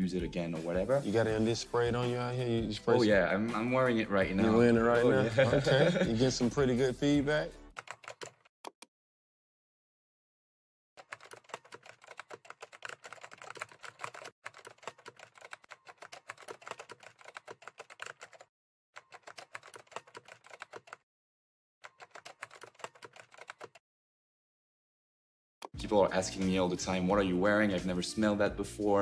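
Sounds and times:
rapid keyboard typing: 7.7 - 8.5, 11.0 - 21.0, 21.8 - 23.8.

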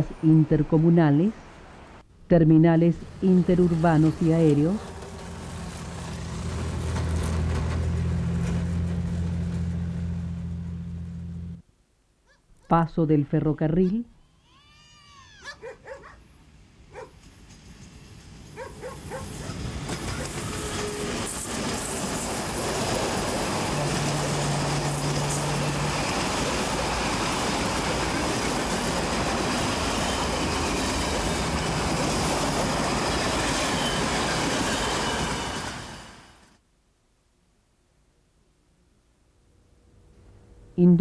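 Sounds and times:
train passing: 2.6 - 11.6, 16.0 - 36.6.

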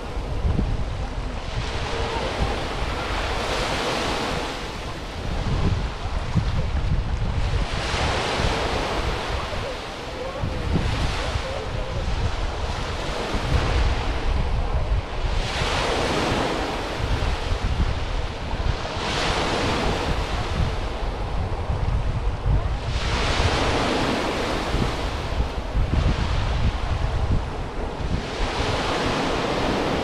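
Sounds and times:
waves breaking on beach: 0.0 - 30.0
wind on microphone: 0.0 - 30.0.

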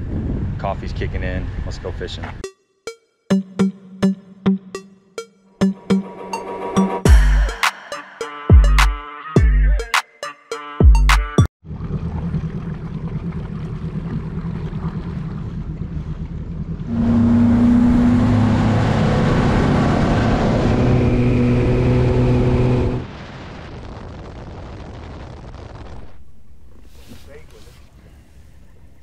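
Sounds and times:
outboard motor running: 11.6 - 18.1
rushing wind and water: 12.1 - 26.9.

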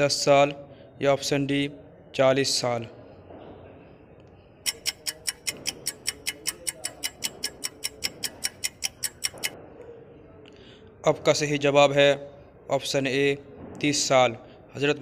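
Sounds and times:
rapid clock-like timer ticks: 4.6 - 9.6.

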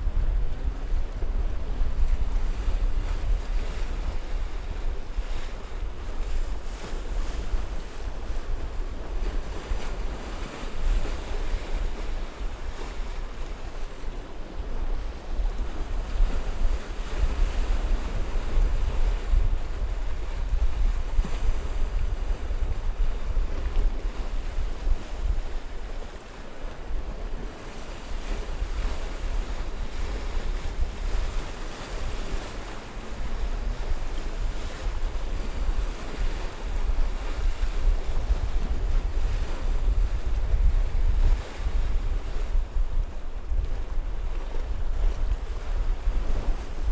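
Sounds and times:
wind buffeting microphone: 0.0 - 46.9.

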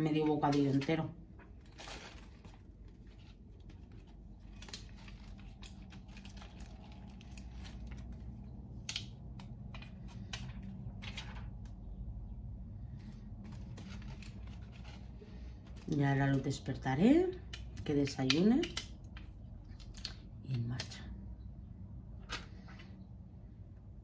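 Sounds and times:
low steady hum: 0.0 - 24.0
hands handling bread and ham: 0.1 - 12.0.

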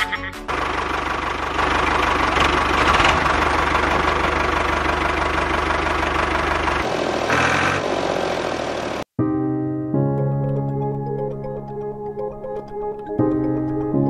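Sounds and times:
small tractor engine chugging: 0.5 - 9.0.

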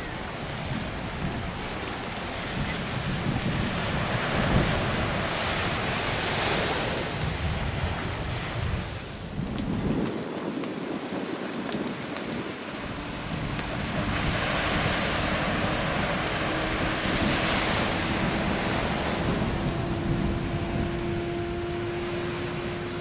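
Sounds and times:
wind noise on microphone: 0.0 - 23.0
jet engine whine: 11.1 - 23.0
higher jet tone: 12.8 - 23.0.

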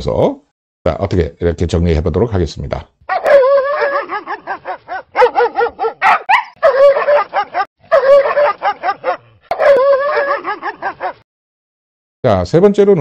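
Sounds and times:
small dog yapping: 3.1 - 11.2.

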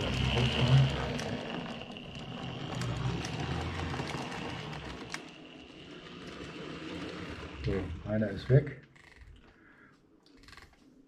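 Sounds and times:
light irregular track clicks: 0.0 - 7.8
model train whirring: 0.0 - 8.5.

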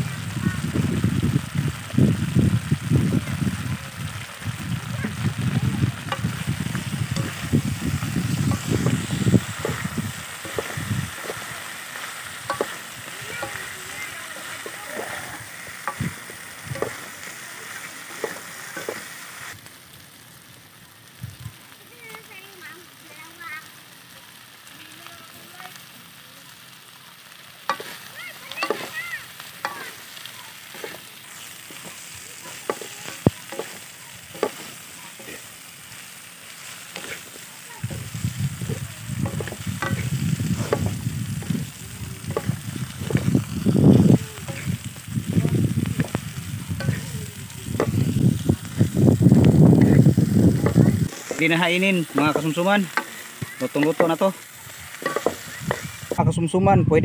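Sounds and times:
food sizzling in a wok: 0.0 - 56.8
wooden spatula scraping wok: 6.0 - 19.6, 27.6 - 56.3
spatula clacking against pan: 12.4 - 13.7, 27.7 - 28.0, 28.6 - 28.9, 31.7 - 35.4, 55.0 - 55.9.

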